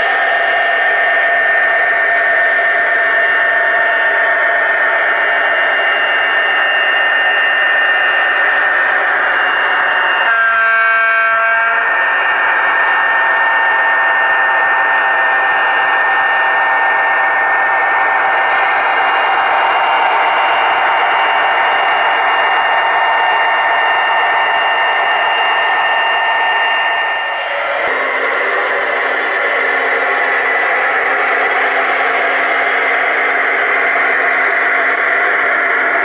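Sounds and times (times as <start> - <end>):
locomotive horn blast: 10.2 - 12.0
diesel engine running: 27.4 - 33.0.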